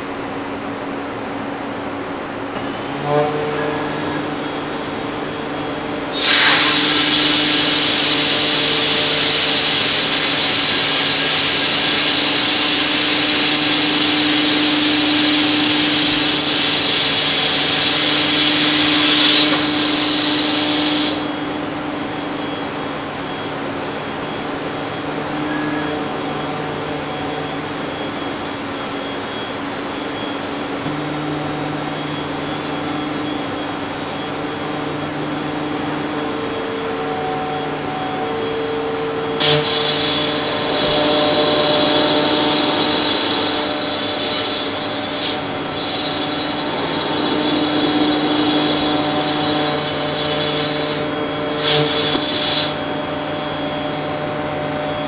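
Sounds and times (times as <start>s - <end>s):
motor hum: 2.5s - 55.0s
spindle cutting foam hiss: 6.1s - 21.3s.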